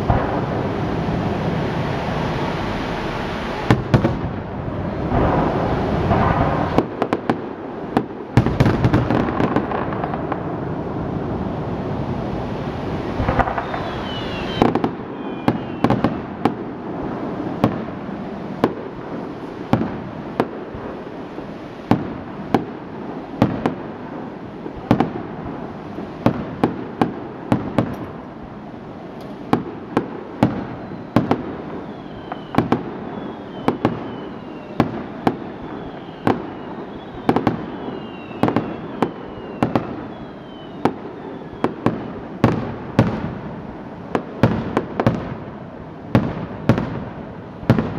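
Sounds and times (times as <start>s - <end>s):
firework bangs: 0.0s - 47.9s
firework falling whistles: 12.4s - 22.7s, 29.2s - 43.2s.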